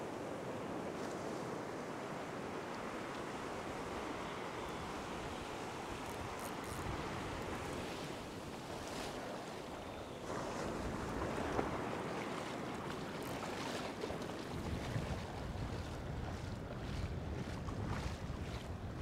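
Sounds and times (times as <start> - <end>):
ocean waves breaking on beach: 0.0 - 19.0
wind on microphone: 3.3 - 13.8, 14.4 - 19.0.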